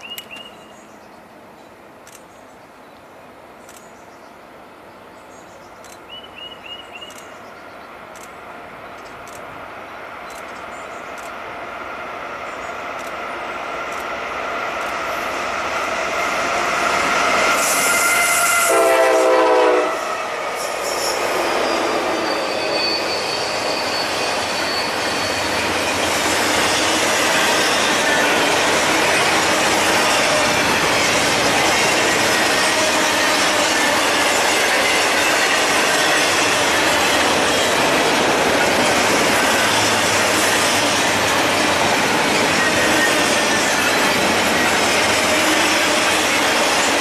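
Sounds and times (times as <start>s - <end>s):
diesel locomotives passing: 0.0s - 47.0s
high wheel squeal: 17.0s - 18.8s, 20.5s - 29.2s
train horn blast: 17.4s - 24.1s.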